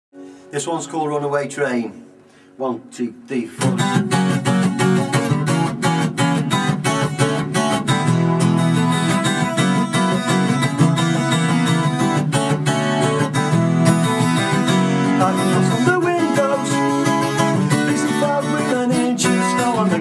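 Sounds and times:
acoustic guitar strumming: 0.2s - 20.0s
person counting in: 1.4s - 3.8s.

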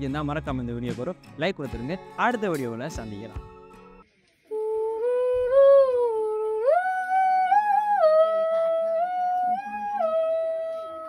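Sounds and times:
woman humming a tune: 4.5s - 11.0s.

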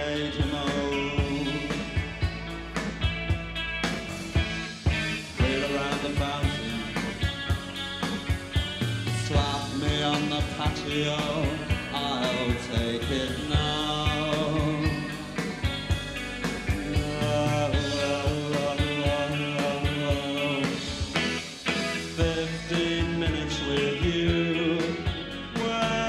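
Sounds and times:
person singing: 0.0s - 2.4s, 5.3s - 7.5s, 9.1s - 15.6s, 16.6s - 21.3s, 22.0s - 26.0s
rock band playing live: 0.0s - 26.0s.

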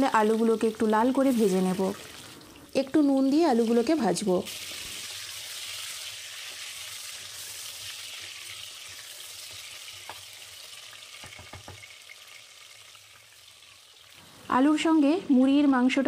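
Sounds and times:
potatoes sizzling in hot oil: 0.0s - 15.1s
wooden spatula tapping: 11.2s - 11.9s.

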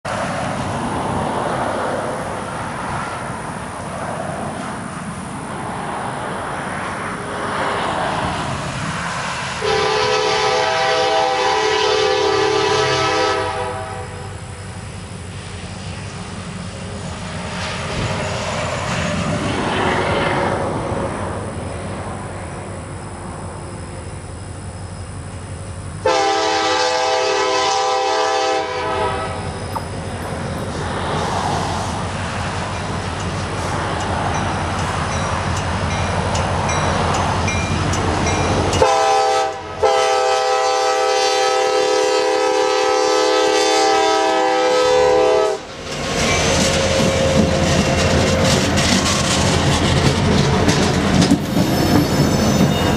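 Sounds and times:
locomotive air horn blasts: 9.6s - 14.4s, 26.0s - 29.6s, 38.8s - 45.7s.

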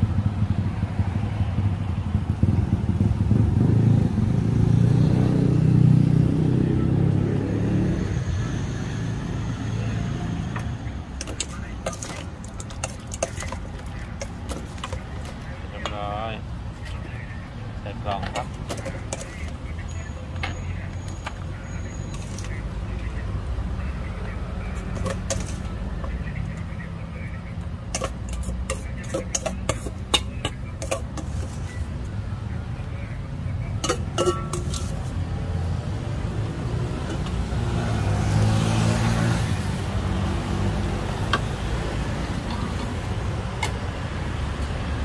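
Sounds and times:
low hum of traffic: 0.0s - 45.0s
motor vehicle passing: 0.0s - 45.0s
metal spoon clinking in bowl: 11.2s - 15.0s, 27.9s - 31.3s, 33.8s - 35.0s.

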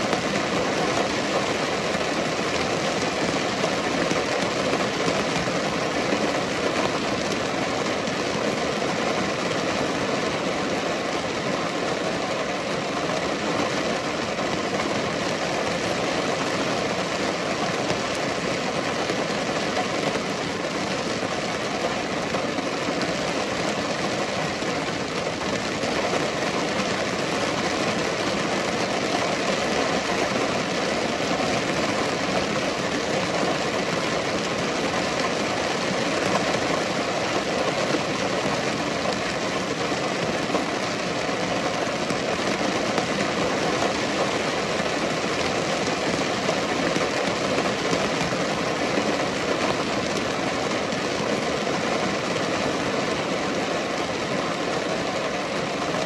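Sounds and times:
steady rain falling: 0.0s - 56.0s.

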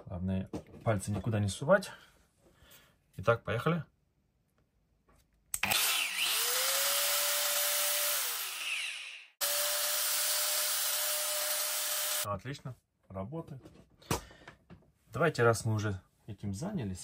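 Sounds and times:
angle grinder motor whine: 5.6s - 12.2s.

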